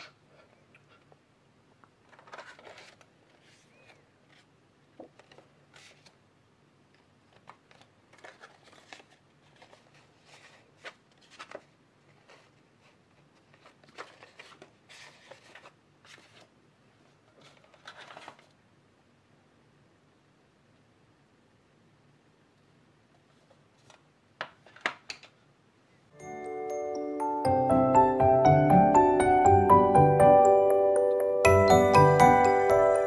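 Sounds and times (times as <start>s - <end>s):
objects handled on a table: 1.8s - 6.1s.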